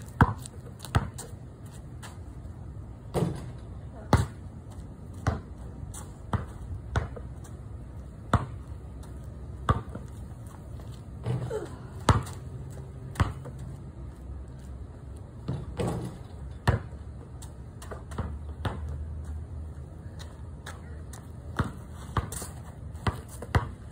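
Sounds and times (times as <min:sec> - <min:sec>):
basketball bouncing on concrete: 0:00.0 - 0:01.4, 0:03.1 - 0:07.4, 0:08.0 - 0:13.8, 0:15.4 - 0:19.4, 0:20.6 - 0:23.9.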